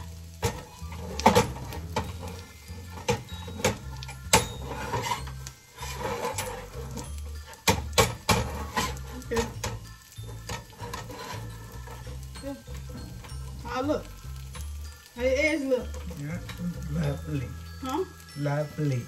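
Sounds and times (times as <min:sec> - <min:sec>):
music playing: 0:00.0 - 0:19.0
utensil scraping against a pan: 0:00.6 - 0:13.7.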